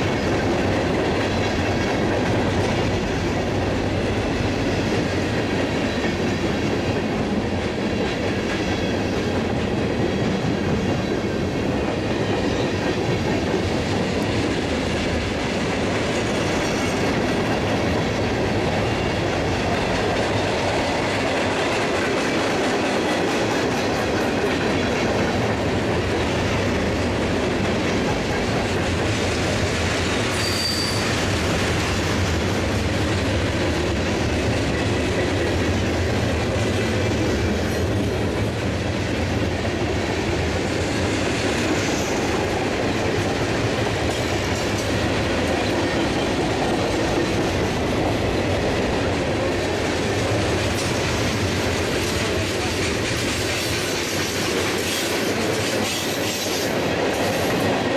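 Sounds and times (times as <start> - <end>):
freight cars rolling on rails: 0.0 - 57.9
high-pitched wheel squeal: 30.3 - 31.2.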